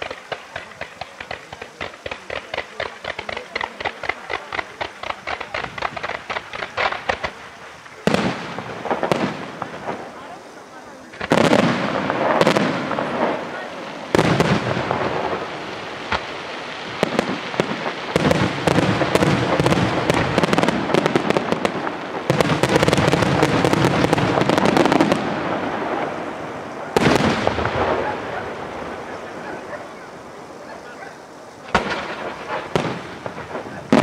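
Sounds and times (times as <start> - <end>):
fireworks crackling: 0.0 - 34.0
heavy firework bang: 11.2 - 16.3, 17.0 - 30.2, 31.7 - 34.0.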